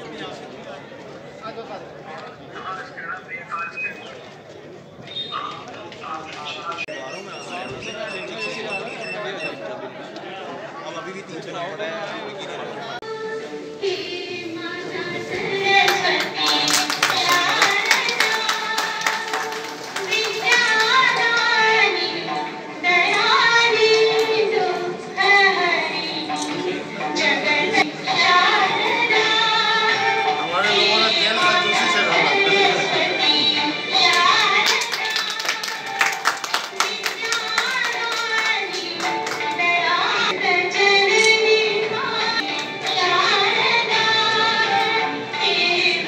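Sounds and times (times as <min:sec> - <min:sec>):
girls singing: 0:13.0 - 0:46.0
hand clapping: 0:15.8 - 0:21.5, 0:34.1 - 0:39.6.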